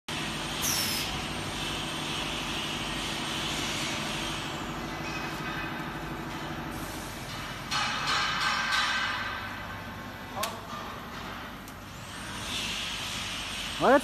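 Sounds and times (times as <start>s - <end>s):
packing machine mechanical hum: 0.1s - 14.0s
hiss: 0.5s - 4.5s, 6.7s - 7.3s, 11.9s - 14.0s.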